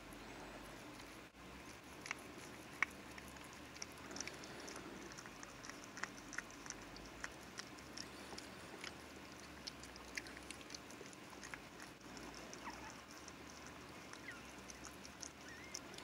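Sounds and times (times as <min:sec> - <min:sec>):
dog licking: 0:00.7 - 0:16.0
puppies squeaking: 0:12.5 - 0:16.0.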